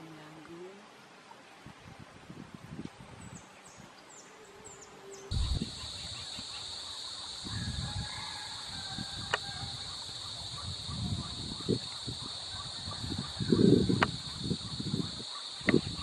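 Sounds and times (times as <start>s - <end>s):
high-pitched insect drone: 4.6s - 16.0s.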